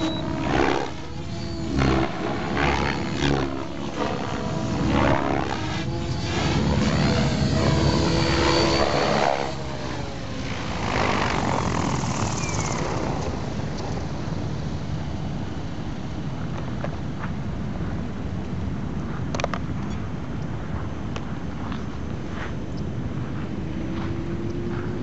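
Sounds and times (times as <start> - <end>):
motor whining: 0.0 - 14.4
helicopter rotor buzzing: 0.0 - 16.5
steady rushing sound: 0.0 - 19.4.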